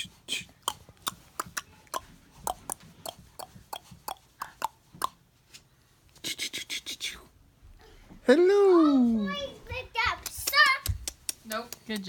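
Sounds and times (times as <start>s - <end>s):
mouth clicks: 0.0s - 5.2s.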